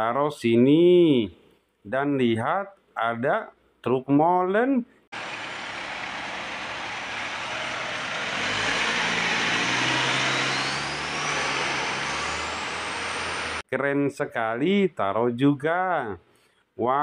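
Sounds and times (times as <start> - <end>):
high whine rising in pitch: 5.2 - 13.6
road noise rush: 5.2 - 13.6
truck engine low note: 5.2 - 13.6.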